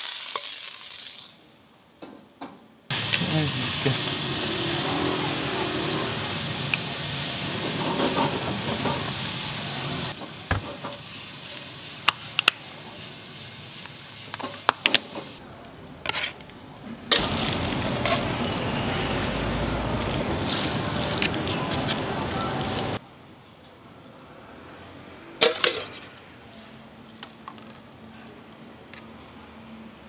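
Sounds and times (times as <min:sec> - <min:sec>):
steak sizzling on griddle: 0:00.0 - 0:01.4, 0:02.9 - 0:15.4, 0:17.1 - 0:23.0.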